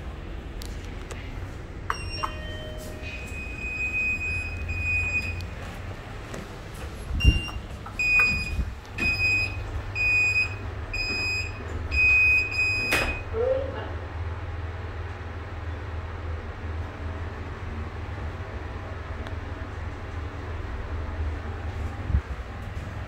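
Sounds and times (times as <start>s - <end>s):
elevator beeps: 1.9s - 5.7s, 7.2s - 13.3s.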